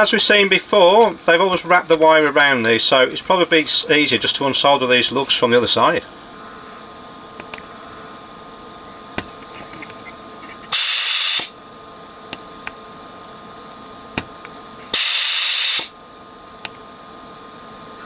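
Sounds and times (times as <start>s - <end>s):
desoldering pump hissing: 0.0s - 11.6s, 14.2s - 16.0s.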